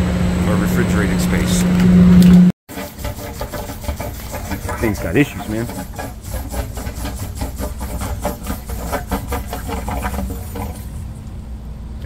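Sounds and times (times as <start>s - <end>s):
low machinery hum: 0.0s - 12.0s
rapid ticking: 2.7s - 10.9s.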